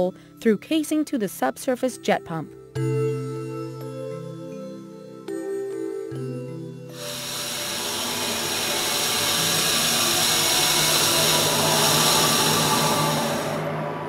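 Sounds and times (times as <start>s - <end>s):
background music with held tones: 0.0s - 14.0s
steady rushing hiss: 6.9s - 13.8s.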